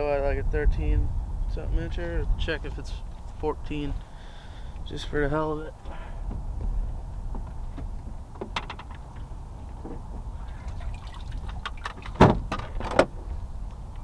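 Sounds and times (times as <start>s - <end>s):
sharp knocks and clatters: 7.4s - 9.2s
water slapping boat hull: 8.4s - 12.8s.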